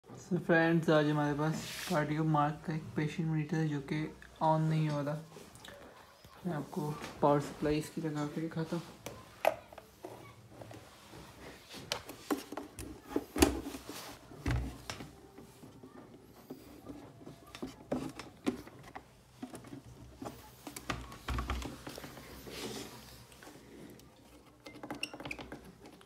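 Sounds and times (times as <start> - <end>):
handling clicks and knocks: 11.8 - 26.0.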